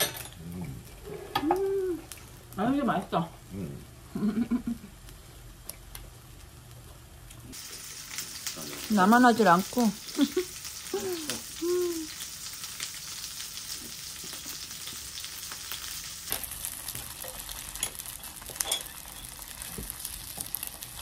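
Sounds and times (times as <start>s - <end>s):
food sizzling in hot oil: 7.4s - 21.0s
utensils clicking on pan: 14.3s - 21.0s.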